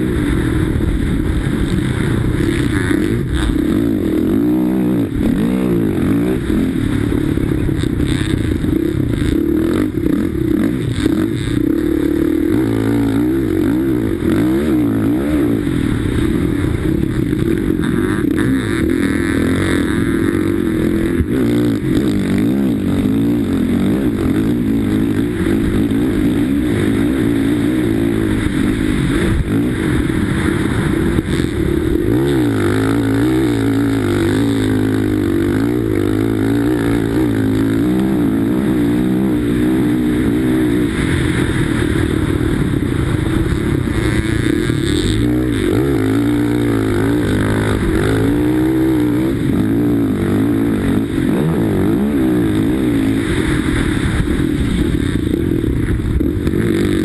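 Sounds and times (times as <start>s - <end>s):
motorcycle engine revving hard: 0.0s - 57.0s.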